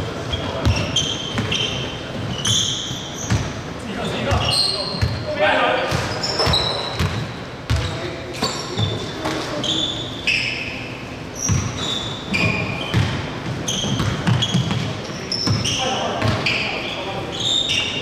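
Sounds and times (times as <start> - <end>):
sneakers squeaking on court: 0.0 - 18.0
players' voices: 3.7 - 10.8
basketball bouncing: 5.9 - 7.9, 12.9 - 14.9, 16.2 - 16.4.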